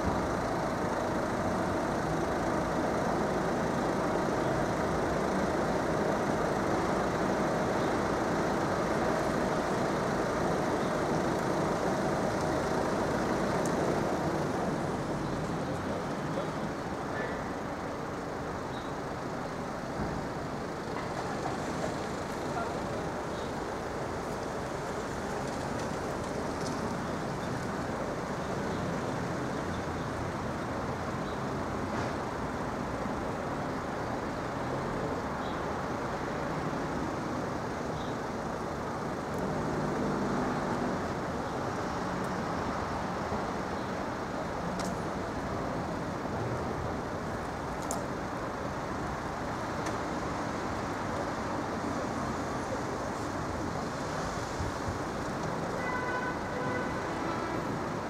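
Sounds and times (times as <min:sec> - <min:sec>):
road traffic noise: 0:00.0 - 0:58.0.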